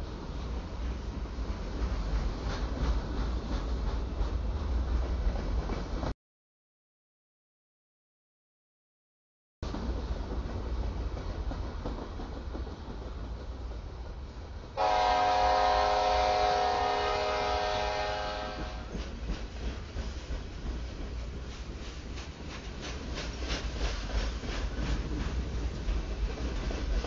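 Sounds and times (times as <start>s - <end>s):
train wheels clicking over rail joints: 0.2s - 6.1s, 9.6s - 27.0s
locomotive air horn chord: 14.8s - 18.9s.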